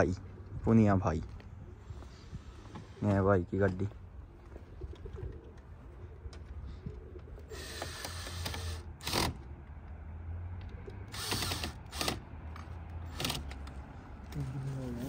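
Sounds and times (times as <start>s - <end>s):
cordless drill driving screws: 7.5s - 9.4s, 11.1s - 12.2s.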